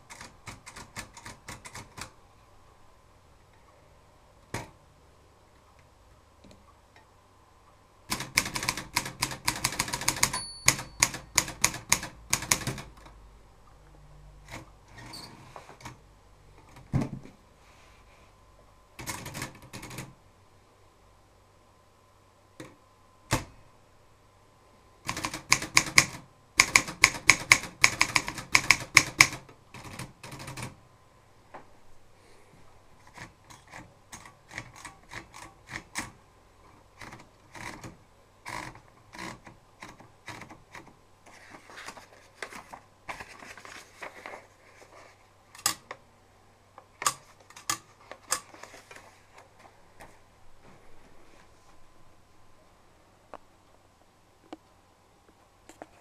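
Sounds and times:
manual typewriter typing: 0.0s - 2.2s, 8.1s - 13.1s, 19.0s - 20.2s, 25.0s - 30.8s, 33.0s - 36.2s, 37.0s - 40.9s.

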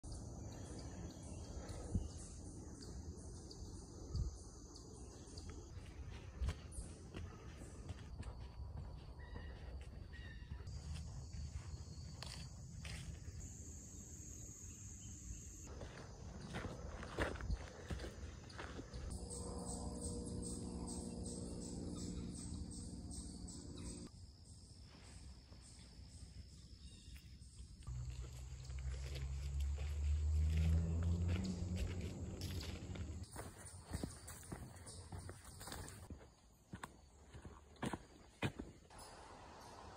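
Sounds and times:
high insect hum: 0.1s - 39.9s
insects chirping: 0.1s - 39.9s
high insect drone: 10.7s - 27.2s
low steady hum: 18.6s - 24.1s.

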